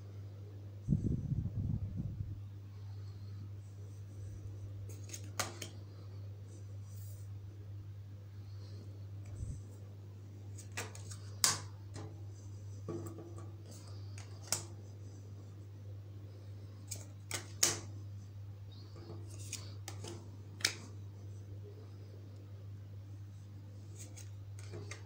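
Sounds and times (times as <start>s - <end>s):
cards tapping on glass table: 10.6s - 12.1s.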